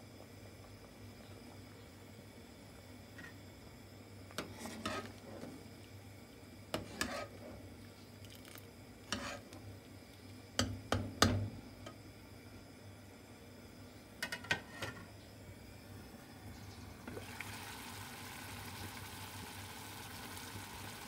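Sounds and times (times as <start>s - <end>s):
metal spoon stirring a pot: 4.4s - 5.2s, 6.8s - 7.4s, 9.1s - 9.5s.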